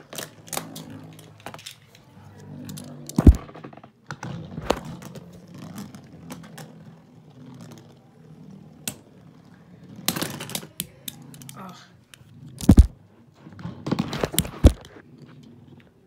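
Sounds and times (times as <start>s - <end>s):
clicks and knocks of tops: 12.6s - 12.9s.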